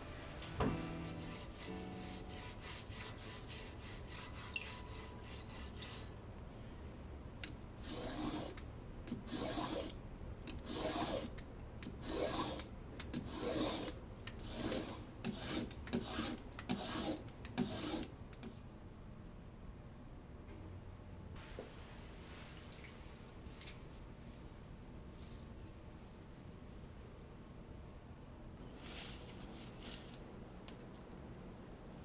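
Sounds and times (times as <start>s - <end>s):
stiff brush scrubbing root: 1.0s - 6.1s
vegetable peeler scraping: 7.8s - 8.6s, 9.2s - 18.1s.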